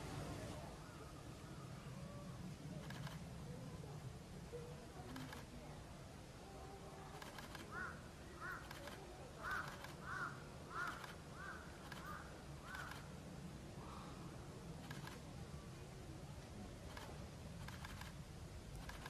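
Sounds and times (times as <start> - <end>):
faint low hum: 0.0 - 19.0
crow cawing: 7.7 - 8.8, 9.4 - 13.0.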